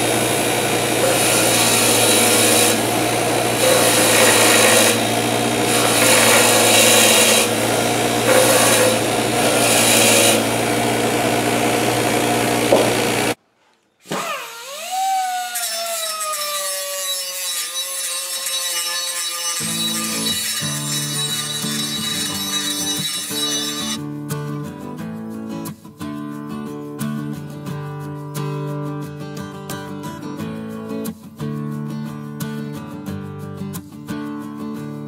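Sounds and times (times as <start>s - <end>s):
bench grinder humming: 0.0s - 13.4s, 14.1s - 24.0s
metal grinding on wheel: 0.0s - 13.4s, 16.6s - 24.0s
pneumatic cutoff tool whine: 0.0s - 13.4s, 14.0s - 24.0s.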